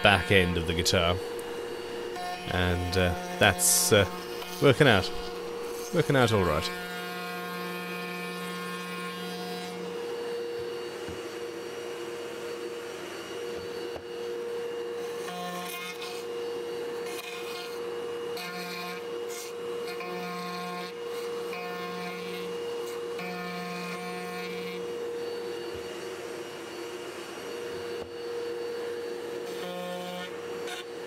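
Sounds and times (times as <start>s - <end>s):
router bit rasping in wood: 0.0s - 7.5s
router high whine: 0.0s - 31.0s.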